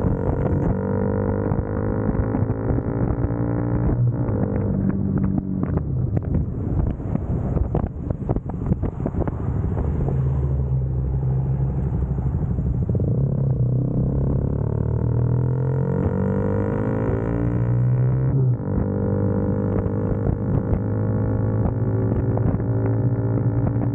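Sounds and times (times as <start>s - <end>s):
motorcycle engine running: 0.0s - 10.0s, 11.8s - 23.9s
wind buffeting microphone: 0.0s - 14.4s, 16.0s - 23.9s.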